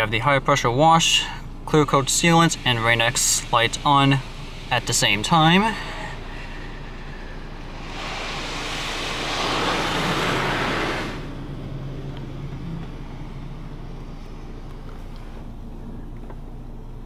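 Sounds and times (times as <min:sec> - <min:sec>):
low machine hum: 0:00.0 - 0:17.0
high-pressure water spray hissing: 0:01.9 - 0:11.4.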